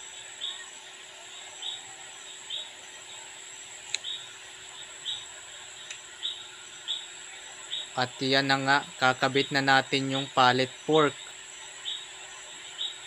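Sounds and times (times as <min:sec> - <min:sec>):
faint steady hiss: 0:00.0 - 0:13.0
small sharp clicks: 0:03.9 - 0:04.2, 0:05.8 - 0:06.0.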